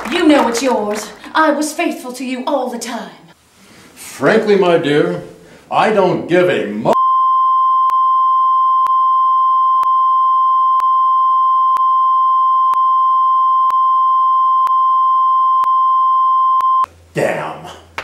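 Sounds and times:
high-pitched censor bleep: 0:07.0 - 0:16.9.

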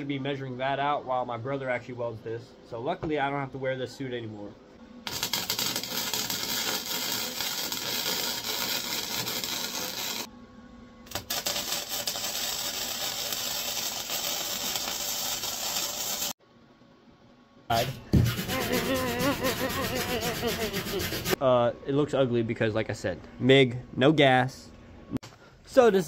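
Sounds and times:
welding arc crackling: 0:05.0 - 0:10.3, 0:11.1 - 0:16.4.

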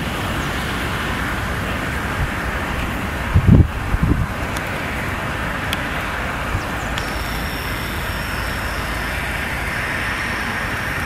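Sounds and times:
outdoor rumble and hiss: 0:00.0 - 0:11.0
faint high whine: 0:04.4 - 0:11.0.

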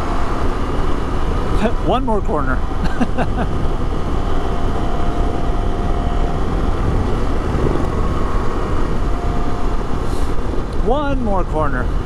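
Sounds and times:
wind rush over microphone: 0:00.0 - 0:12.0
motorcycle engine running: 0:03.4 - 0:11.1.

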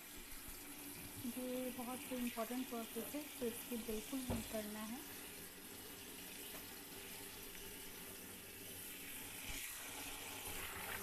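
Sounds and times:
tap water into plastic bucket: 0:03.9 - 0:04.8, 0:06.4 - 0:06.8.

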